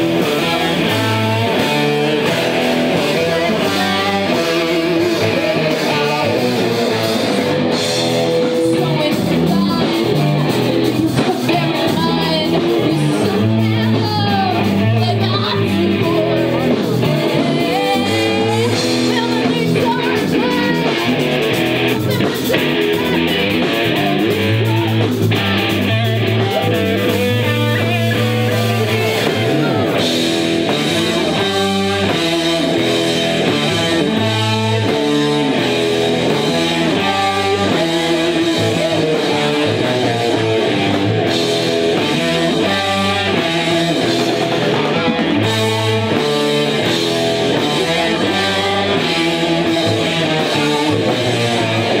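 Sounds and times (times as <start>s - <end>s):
drum kit: 0.0s - 52.0s
electric guitars: 0.0s - 52.0s
women singing into microphones: 8.8s - 21.0s, 47.6s - 51.1s.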